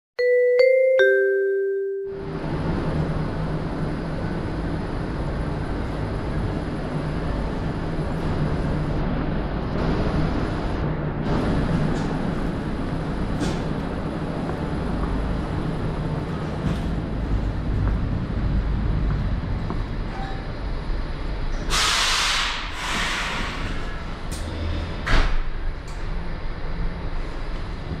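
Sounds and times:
train hum and rumble: 0:02.1 - 0:28.0
air hiss burst: 0:21.7 - 0:23.8.

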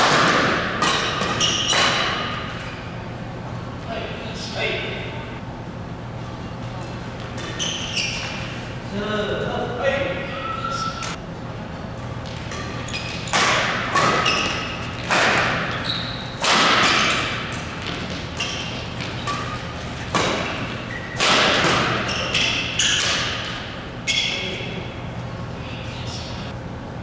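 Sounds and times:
rackets hitting shuttlecock: 0:00.0 - 0:02.6, 0:12.1 - 0:15.8, 0:16.4 - 0:24.4
shoes squeaking on court: 0:00.8 - 0:03.0, 0:06.1 - 0:09.0, 0:10.4 - 0:25.5.

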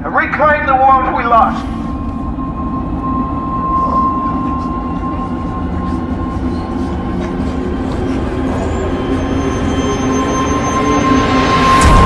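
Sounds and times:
sustained low notes: 0:00.9 - 0:09.2, 0:11.2 - 0:12.0
ominous low drone: 0:00.9 - 0:12.0
held high tone: 0:01.1 - 0:12.0.

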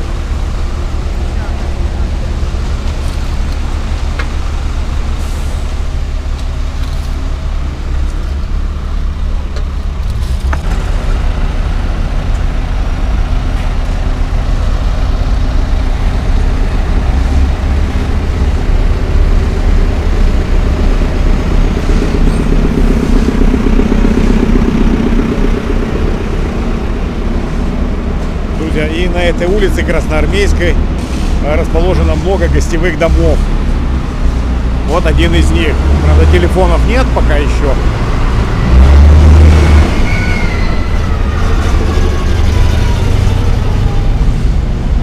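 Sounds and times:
concrete mixer truck running: 0:00.0 - 0:45.0
wheel loader engine: 0:00.0 - 0:45.0.

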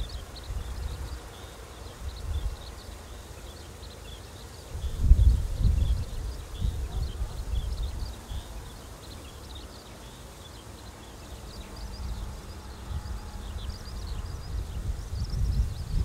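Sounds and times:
wind buffeting microphone: 0:00.0 - 0:01.3, 0:01.9 - 0:03.2, 0:04.6 - 0:09.6, 0:11.4 - 0:16.0
small birds chirping: 0:00.0 - 0:16.0.

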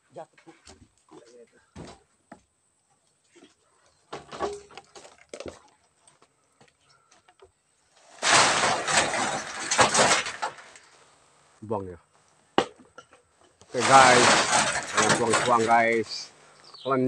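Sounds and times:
quiet knocks and scrapes: 0:12.7 - 0:16.3
wet concrete pouring onto mesh: 0:13.8 - 0:16.1.

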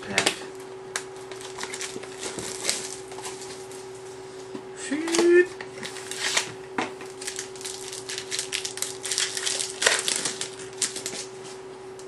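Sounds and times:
foil wrapper crinkling and tearing: 0:05.8 - 0:11.3.

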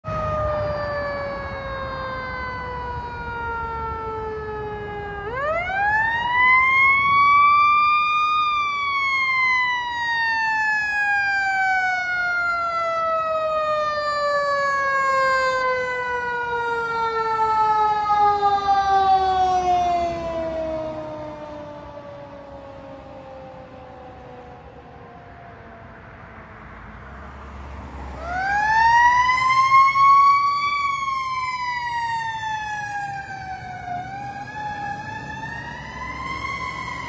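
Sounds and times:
fire engine siren: 0:00.0 - 0:37.0.

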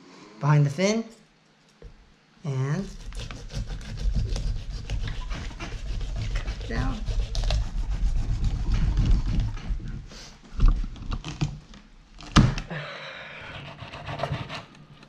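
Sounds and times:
knife sawing through fish: 0:02.8 - 0:10.1, 0:13.4 - 0:14.8.

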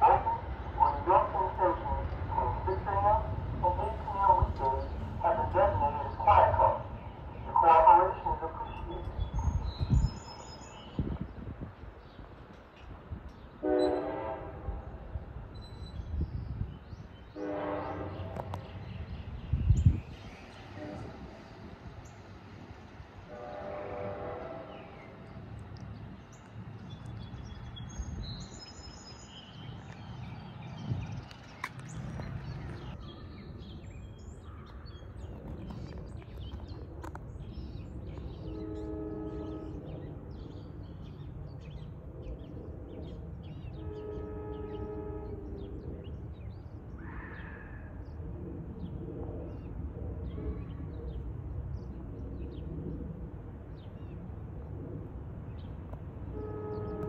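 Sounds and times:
birds chirping: 0:00.0 - 0:48.2, 0:56.4 - 0:57.0
distant train air horn: 0:13.6 - 0:14.9, 0:17.4 - 0:18.7, 0:20.7 - 0:21.4, 0:23.2 - 0:25.2, 0:38.4 - 0:40.0, 0:43.8 - 0:45.8, 0:56.3 - 0:57.0.

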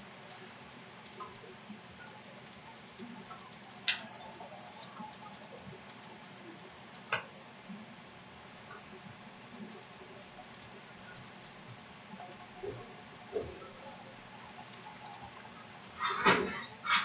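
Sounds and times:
faint room noise: 0:00.0 - 0:17.0
light ticks and taps: 0:03.0 - 0:05.3, 0:06.9 - 0:07.3.

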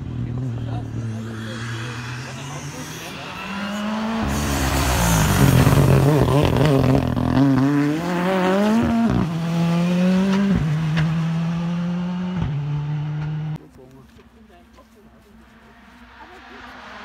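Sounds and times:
rally car engine revving past: 0:00.0 - 0:13.6.

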